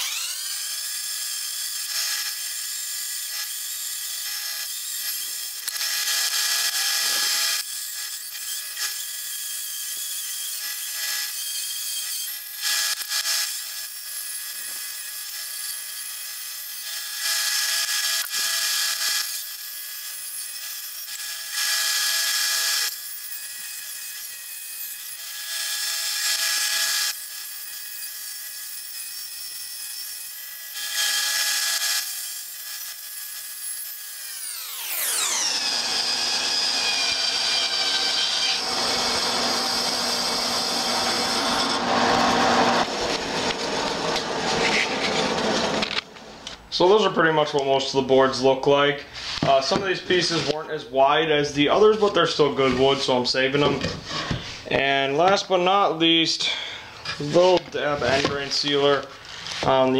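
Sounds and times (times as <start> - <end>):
bandsaw whining: 0.0 - 47.4, 48.1 - 59.9
saw cutting wood hissing: 34.2 - 45.9.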